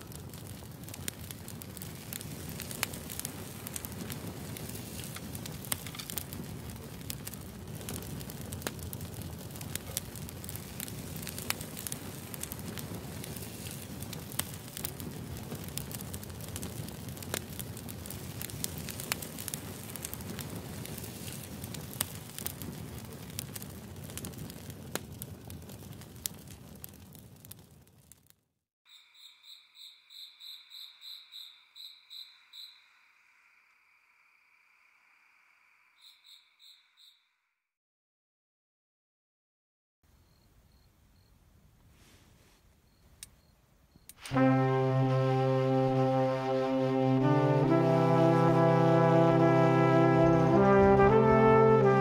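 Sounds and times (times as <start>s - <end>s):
fire crackling in a stove: 0.0s - 28.4s, 41.8s - 45.1s, 45.9s - 52.0s.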